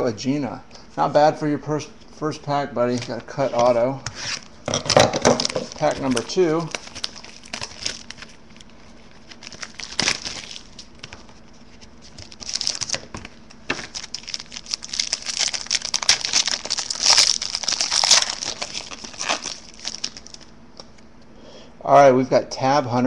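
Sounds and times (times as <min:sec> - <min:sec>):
foil wrapper tearing and crinkling: 0:04.2 - 0:20.5.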